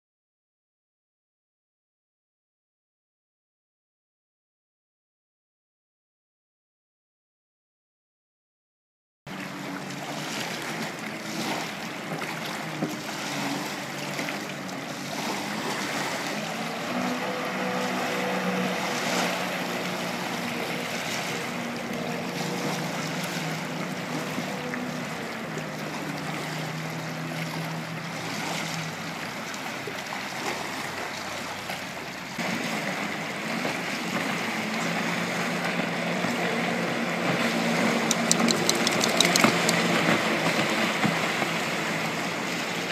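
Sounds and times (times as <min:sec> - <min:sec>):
jet ski engines droning: 0:09.3 - 0:42.9
rushing water noise: 0:09.3 - 0:42.9.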